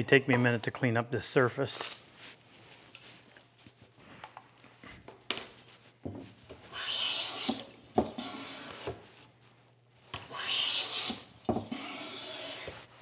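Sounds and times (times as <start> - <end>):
hand plane shaving wood: 10.3 - 12.8.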